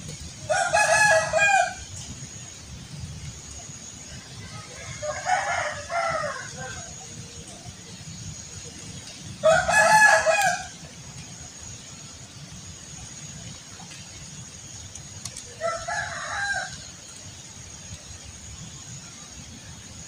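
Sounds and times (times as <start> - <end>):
rooster crowing: 0.5 - 1.9, 4.5 - 7.0, 9.4 - 10.8, 15.6 - 16.9.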